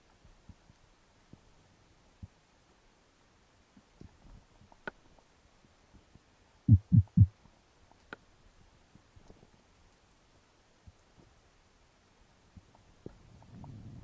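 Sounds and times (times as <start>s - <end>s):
low underwater thumps: 6.7s - 7.3s.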